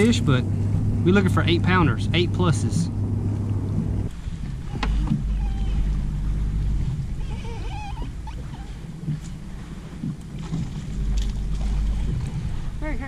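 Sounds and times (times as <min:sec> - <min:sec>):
wind rumbling on microphone: 0:00.0 - 0:13.0
warbling animal call: 0:04.6 - 0:09.0.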